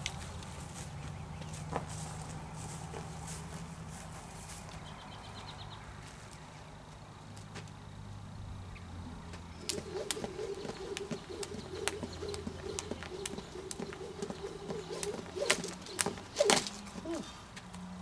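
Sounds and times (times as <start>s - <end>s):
jump rope slapping dirt: 9.3s - 17.8s.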